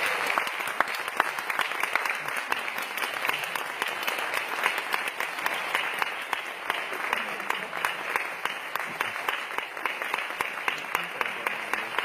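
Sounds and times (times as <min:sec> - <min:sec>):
audience applauding: 0:00.0 - 0:12.0.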